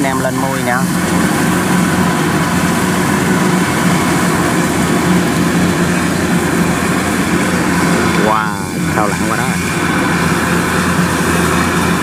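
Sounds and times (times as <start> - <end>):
combine harvester diesel engine: 0.0 - 12.0.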